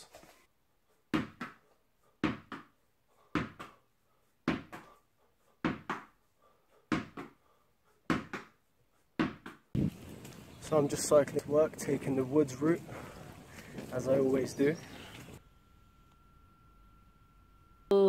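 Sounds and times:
tennis ball bouncing and caught: 9.2s - 9.6s.

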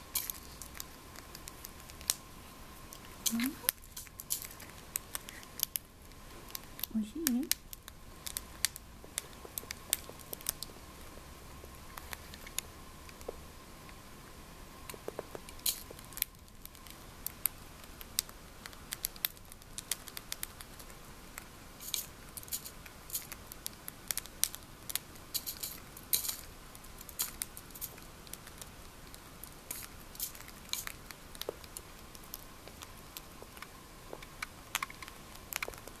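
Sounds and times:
bird pecking and crunching pellets: 0.0s - 36.0s.

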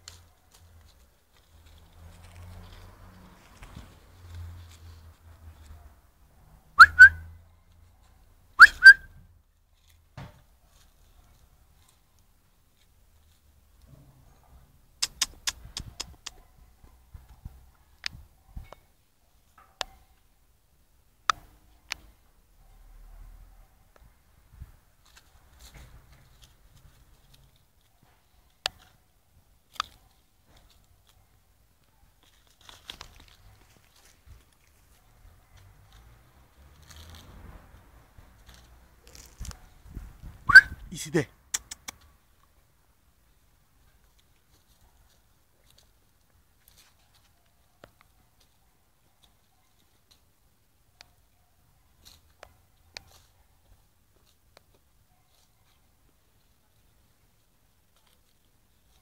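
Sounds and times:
puppies crunching an orange: 0.0s - 5.8s, 15.0s - 16.7s, 24.8s - 40.6s, 41.5s - 59.0s
person whistling rising notes: 6.8s - 7.2s, 8.6s - 9.1s, 40.5s - 40.8s.

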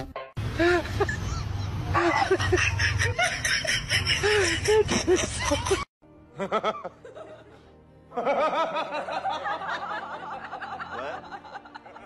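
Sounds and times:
person laughing hard: 0.6s - 7.4s.

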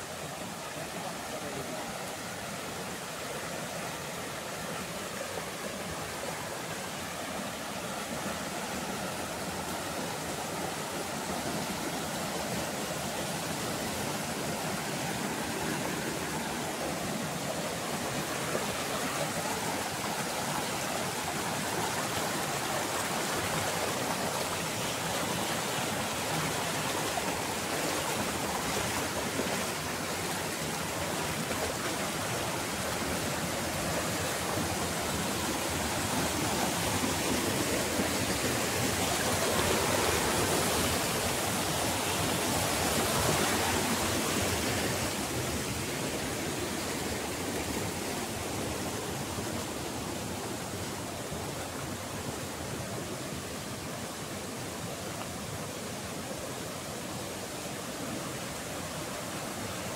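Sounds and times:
stream rushing over rocks: 0.0s - 59.9s.

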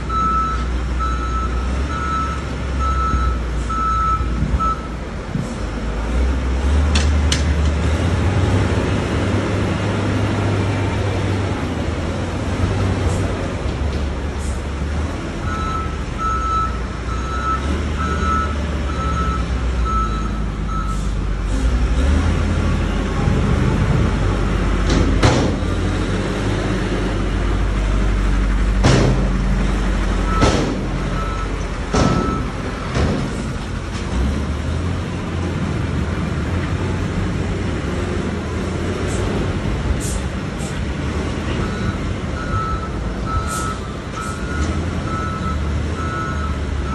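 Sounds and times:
diesel truck engine running: 0.0s - 46.9s
beeping alarm: 31.1s - 32.5s.

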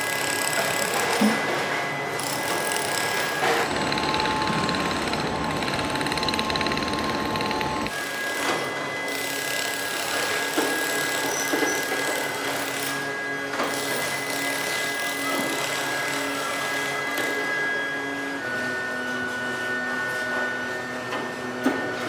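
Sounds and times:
factory machinery running: 0.0s - 22.0s
machine whine over low hum: 3.4s - 9.1s, 15.2s - 22.0s.

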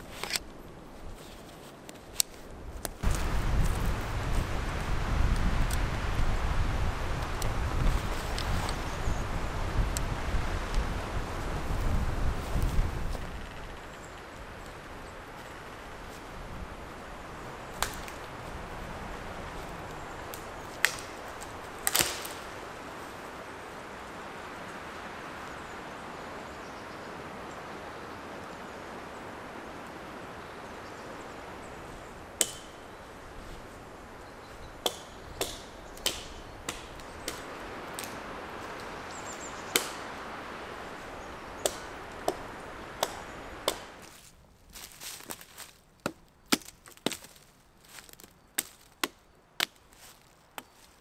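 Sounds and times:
dry wood cracking and snapping: 17.8s - 18.3s, 20.3s - 22.5s, 34.8s - 38.9s, 41.6s - 51.0s.

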